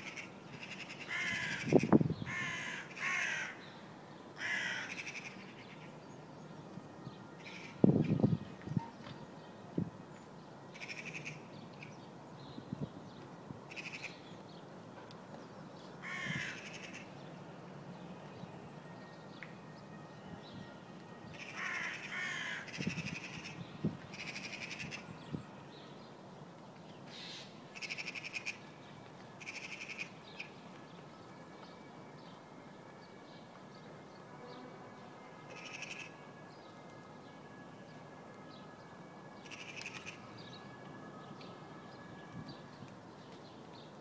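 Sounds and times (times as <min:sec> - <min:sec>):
crows calling harshly: 0:00.0 - 0:03.6, 0:04.4 - 0:05.8, 0:10.8 - 0:11.4, 0:16.0 - 0:17.1, 0:21.4 - 0:25.0, 0:35.5 - 0:36.1, 0:39.5 - 0:40.2.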